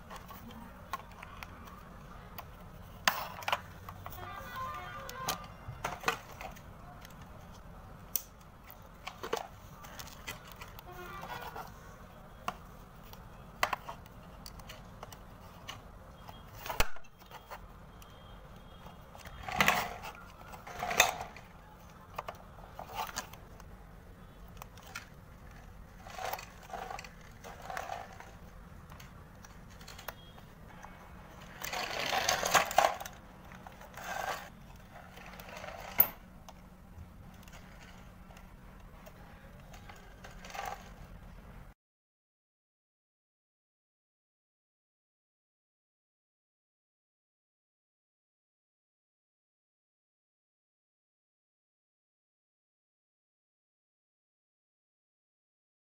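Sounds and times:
plastic toy clicks and scrapes: 0:00.0 - 0:41.2.

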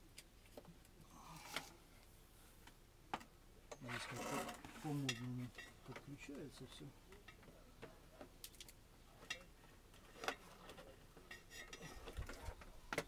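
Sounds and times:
small hard objects clicking: 0:08.4 - 0:08.8.

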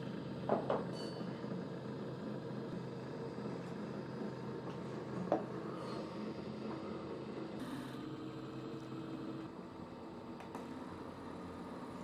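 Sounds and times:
polishing wheel motor humming: 0:01.8 - 0:12.0.

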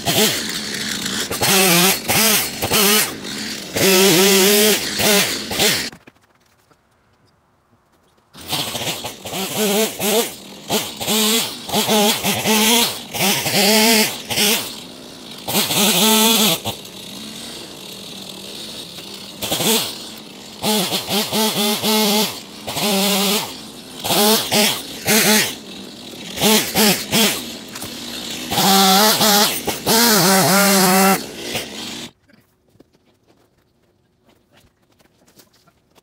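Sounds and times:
chainsaw revving and idling: 0:00.0 - 0:05.9, 0:08.4 - 0:32.2.

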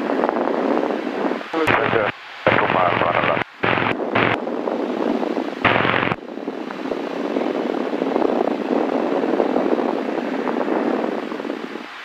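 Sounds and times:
aircraft cabin engine and propeller noise: 0:00.0 - 0:12.0.

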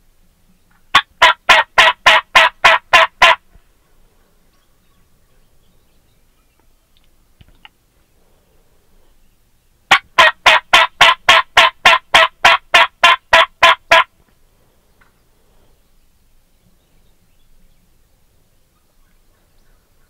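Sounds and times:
turkey yelps: 0:00.9 - 0:03.4, 0:09.9 - 0:14.1.

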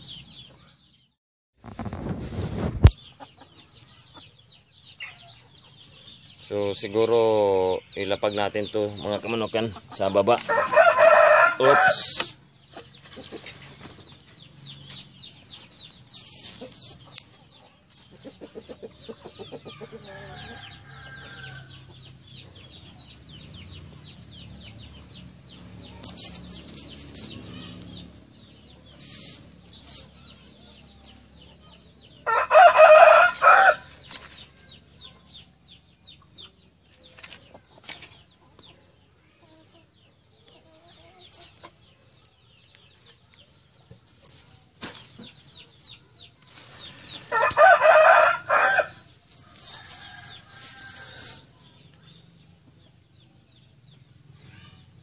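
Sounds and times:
chickens clucking: 0:01.8 - 0:48.3
rooster crowing: 0:10.5 - 0:12.2, 0:19.8 - 0:21.7, 0:32.2 - 0:33.9, 0:47.3 - 0:49.0.

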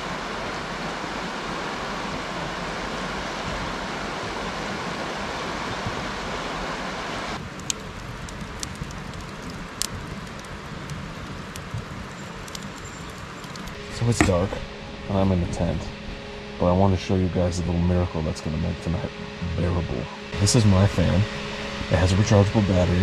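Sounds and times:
river water rushing: 0:00.0 - 0:07.5
campfire crackling: 0:00.0 - 0:16.7
burning logs popping: 0:07.4 - 0:15.6.

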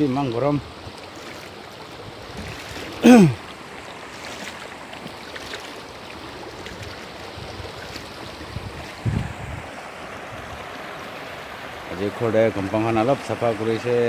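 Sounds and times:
stream running over stones: 0:00.0 - 0:14.0
person's falling vocal sound: 0:03.0 - 0:03.4.

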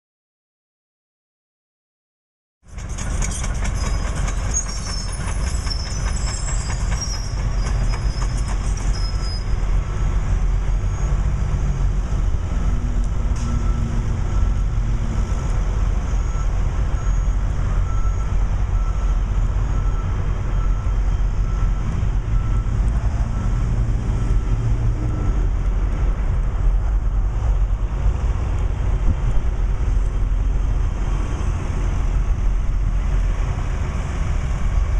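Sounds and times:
diesel construction machinery rumble: 0:02.7 - 0:34.9
high squeaks: 0:02.8 - 0:09.6.

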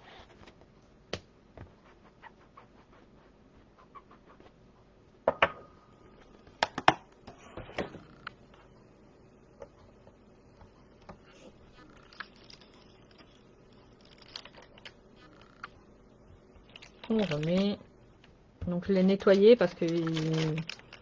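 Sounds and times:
paper rustle: 0:19.2 - 0:21.0.

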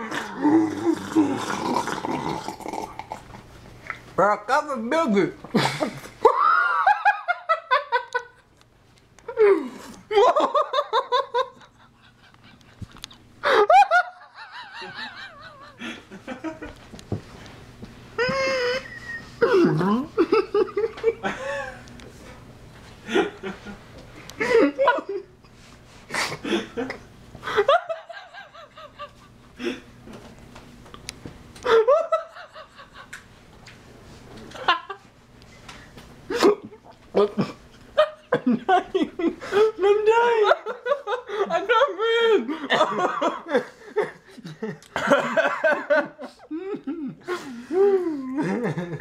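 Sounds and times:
man laughing: 0:05.5 - 0:08.4, 0:09.3 - 0:16.8, 0:18.2 - 0:21.8, 0:24.4 - 0:25.3, 0:31.6 - 0:33.1, 0:36.3 - 0:49.0
man shrieking with laughter: 0:06.2 - 0:07.3, 0:41.5 - 0:42.8.

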